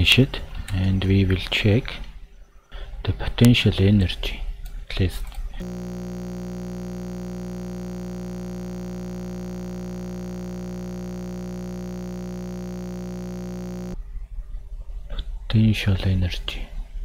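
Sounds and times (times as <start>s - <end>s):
steady electronic buzz: 5.6s - 14.0s.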